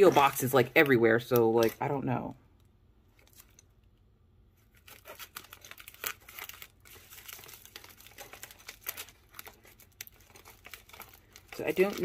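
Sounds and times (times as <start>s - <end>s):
scissors cutting plastic: 0.0s - 1.9s, 4.8s - 12.0s
plastic mailer crinkling: 4.7s - 12.0s.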